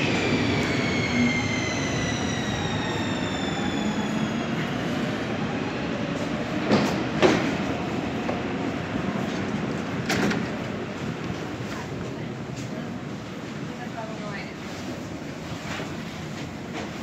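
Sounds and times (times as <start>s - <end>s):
train rumble: 0.0s - 17.0s
train doors clunking: 6.5s - 8.4s, 9.3s - 11.0s.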